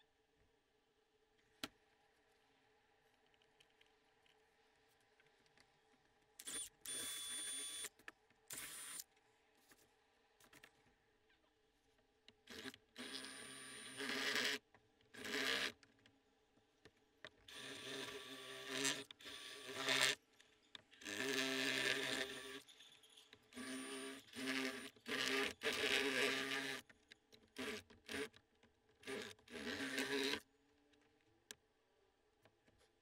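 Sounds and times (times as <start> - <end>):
cordless drill boring through plastic: 6.4 - 7.9, 8.5 - 9.0, 12.5 - 15.8, 17.5 - 20.2, 21.0 - 22.7, 23.5 - 26.9, 27.5 - 28.4, 29.0 - 30.4.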